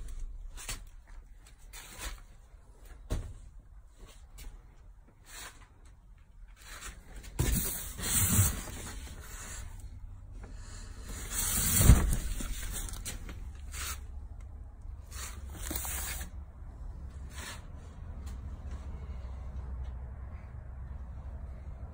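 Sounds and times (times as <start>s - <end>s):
low steady rumble: 7.7s - 21.9s
rubbing and scuffing: 11.0s - 14.2s, 15.0s - 16.4s, 17.1s - 19.2s.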